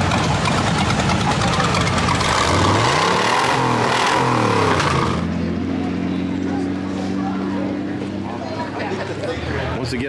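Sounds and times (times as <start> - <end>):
car engine idling and revving: 0.0 - 10.0.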